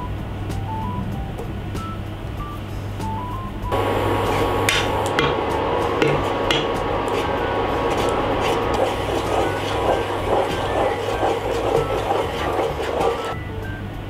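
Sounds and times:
spatula knocking pan side: 0:03.8 - 0:13.4
spatula scraping saucepan: 0:03.8 - 0:13.4.

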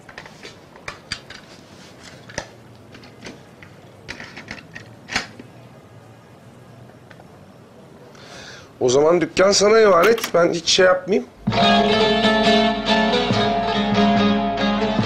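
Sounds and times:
stereo player mechanical clicks: 0:10.0 - 0:10.6.

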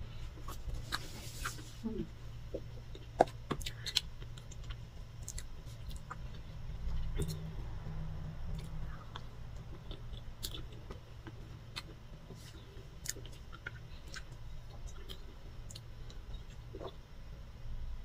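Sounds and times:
low steady hum: 0:00.0 - 0:18.0
person chewing cake: 0:00.1 - 0:17.1.

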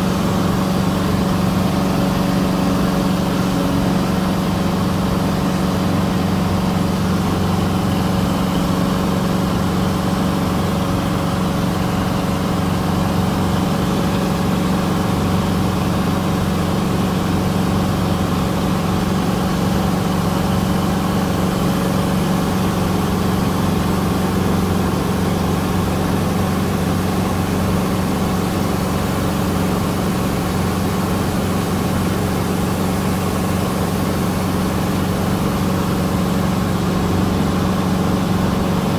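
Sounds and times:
airplane engine and propeller droning: 0:00.0 - 0:38.9.

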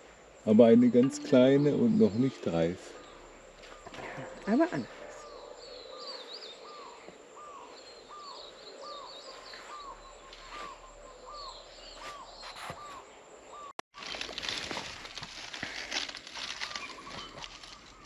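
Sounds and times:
bird repeating rising-and-falling note: 0:00.5 - 0:03.2
bird high chirps: 0:00.6 - 0:13.7.

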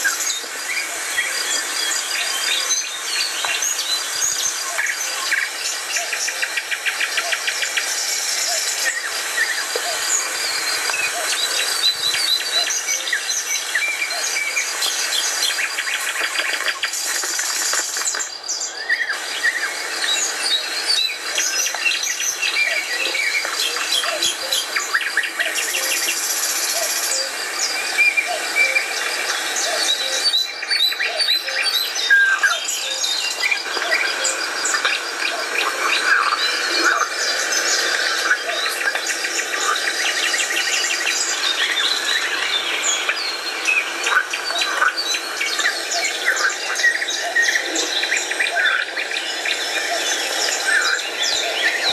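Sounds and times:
songbirds chirping: 0:00.0 - 0:51.9.

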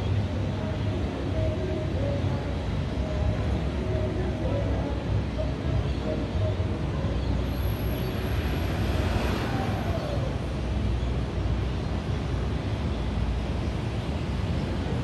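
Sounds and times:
street traffic rumble: 0:00.0 - 0:15.0
vehicle passing: 0:07.5 - 0:11.6.

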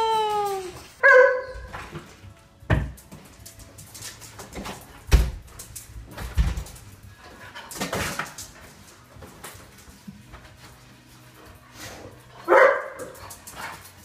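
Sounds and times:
dogs thumping on tiled floor: 0:00.0 - 0:14.0.

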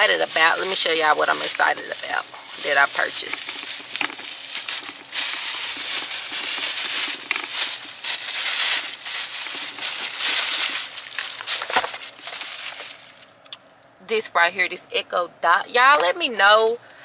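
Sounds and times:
plastic bag rustling: 0:00.0 - 0:13.4.

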